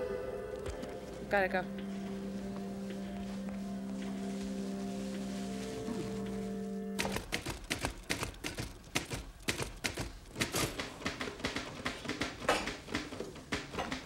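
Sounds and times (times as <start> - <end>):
typewriter keys clacking: 7.0 - 14.0.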